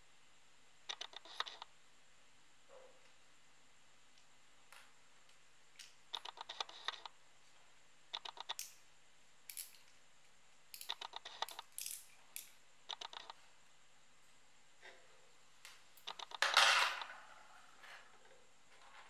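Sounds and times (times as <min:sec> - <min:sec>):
small plastic clicks and rattles: 0:08.1 - 0:08.8, 0:09.5 - 0:10.0, 0:10.7 - 0:13.4.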